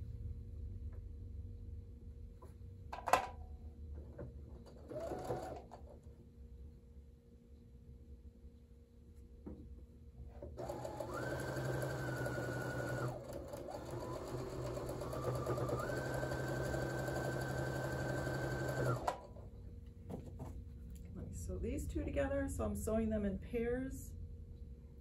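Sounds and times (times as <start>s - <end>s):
sewing machine motor whine: 4.6s - 5.9s, 10.4s - 19.4s.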